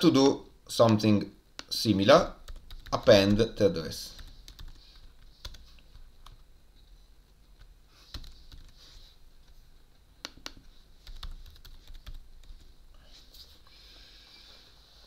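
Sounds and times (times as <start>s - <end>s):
keyboard typing: 2.4s - 6.4s, 7.6s - 8.8s, 10.2s - 12.7s.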